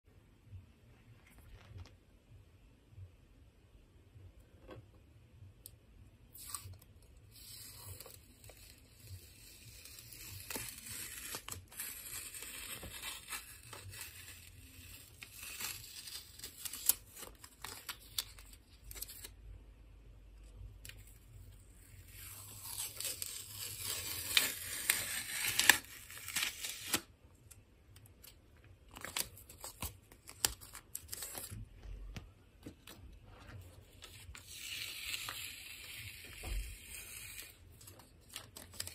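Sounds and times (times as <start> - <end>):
tape peeling off paper: 6.4 - 19.4, 20.8 - 27.1, 28.2 - 31.6, 33.6 - 38.9.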